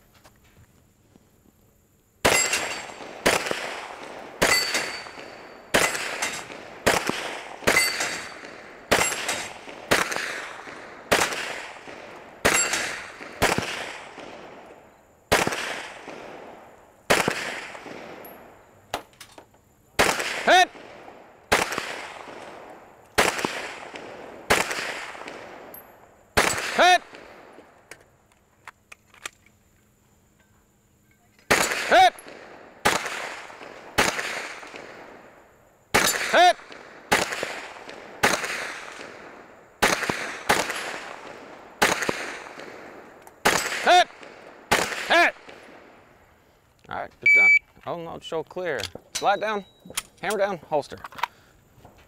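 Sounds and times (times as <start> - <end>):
gunshots with echo: 2.2 - 14.6
bullets ringing on steel plates: 2.3 - 3.0, 4.4 - 6.6, 7.7 - 8.4, 12.5 - 12.9, 49.1 - 50.5.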